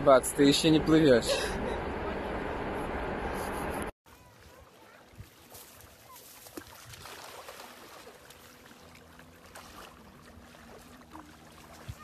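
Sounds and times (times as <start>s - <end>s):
seawater lapping and splashing: 4.1s - 12.0s.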